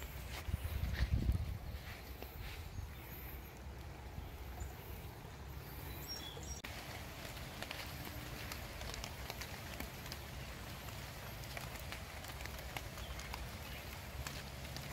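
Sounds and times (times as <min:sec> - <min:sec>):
rain hiss: 0:03.5 - 0:14.9
raindrops ticking on leaves: 0:03.5 - 0:14.9.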